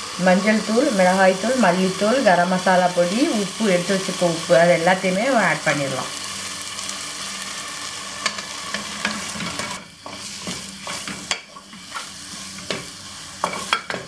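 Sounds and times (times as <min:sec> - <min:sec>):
masala sizzling in oil: 0:00.0 - 0:14.0
wooden spatula scraping pot: 0:08.2 - 0:14.0.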